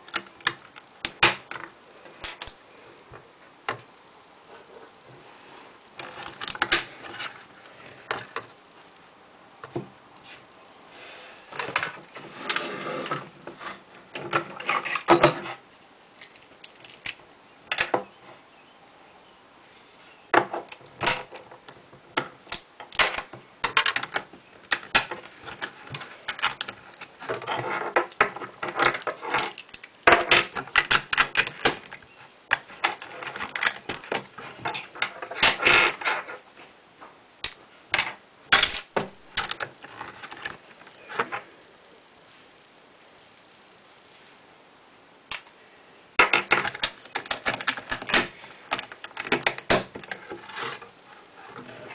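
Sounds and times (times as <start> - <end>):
plastic bricks clicking and snapping: 0.0 - 2.6, 6.0 - 7.4, 16.2 - 18.0, 20.3 - 36.4, 37.4 - 40.6, 45.3 - 45.6, 46.2 - 50.5
plastic bricks rattling: 6.0 - 8.5, 11.6 - 15.6, 16.2 - 18.1, 20.3 - 36.4, 37.9 - 40.6, 46.2 - 50.9.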